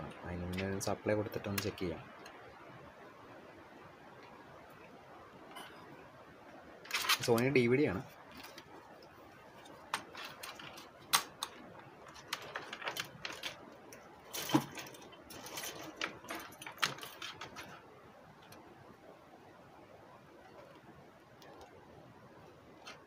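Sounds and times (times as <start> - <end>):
clicks and knocks of handled objects: 6.8 - 7.6, 8.3 - 17.8.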